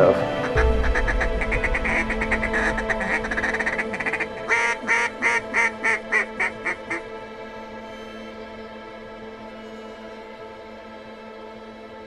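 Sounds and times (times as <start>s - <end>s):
duck quacking: 0.4s - 7.0s.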